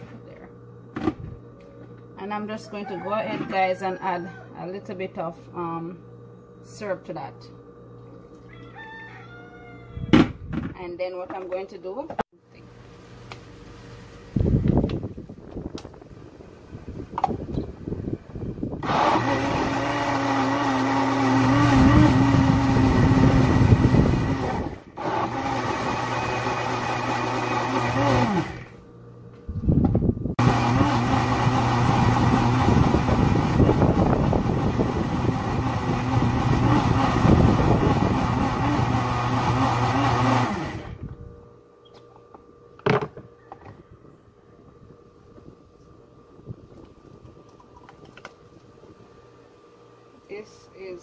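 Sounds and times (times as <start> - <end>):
blender motor running: 18.8 - 28.8, 30.4 - 41.0.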